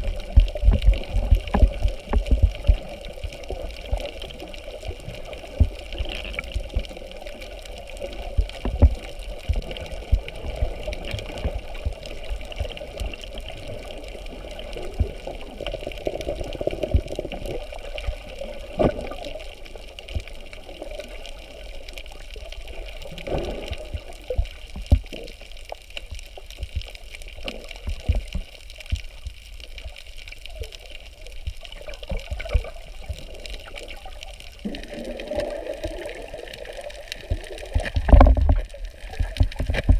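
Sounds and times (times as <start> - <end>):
muffled underwater water wash: 0.0 - 39.9
low underwater thumps and knocks: 37.3 - 38.7.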